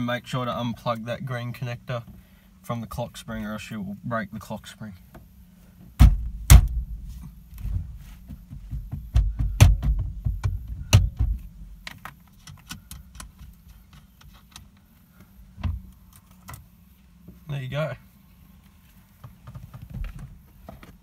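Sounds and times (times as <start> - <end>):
steering wheel being struck: 6.0 - 7.9, 8.5 - 11.5.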